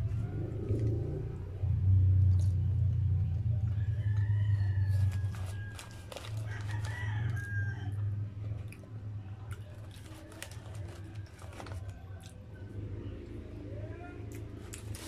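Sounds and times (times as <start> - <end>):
steady low hum: 0.0 - 15.0
chewing: 2.2 - 12.7, 14.3 - 15.0
paper bag crinkling: 4.9 - 7.4, 9.7 - 12.0, 14.6 - 15.0.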